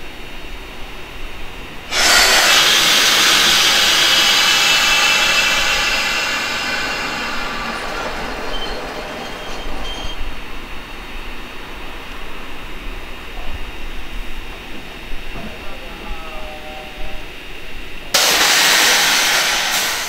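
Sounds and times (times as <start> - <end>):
compressed air hissing: 1.9 - 10.3, 18.2 - 20.0.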